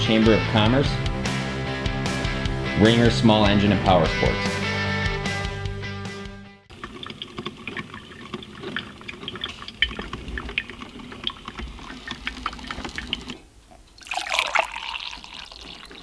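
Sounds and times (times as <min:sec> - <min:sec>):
coffee maker dripping and popping: 0:06.7 - 0:16.0
coffee pouring into a mug: 0:06.7 - 0:16.0.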